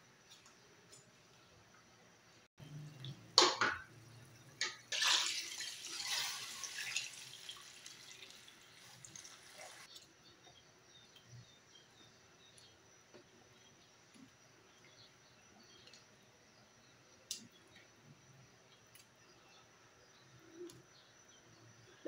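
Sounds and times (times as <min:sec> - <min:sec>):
water pouring into pot: 0:04.6 - 0:09.9.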